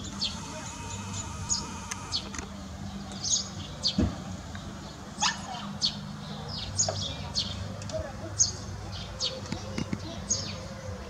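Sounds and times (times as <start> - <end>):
steady low hum: 0.0 - 2.4
small birds chirping: 0.0 - 11.0.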